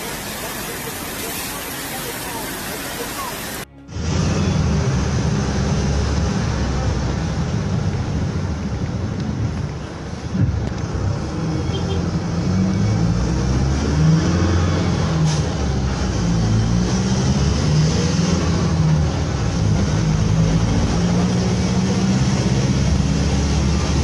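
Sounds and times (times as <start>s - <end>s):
water rushing: 0.0s - 4.7s
heavy rain: 0.0s - 8.8s
car engine rumble: 0.0s - 13.7s.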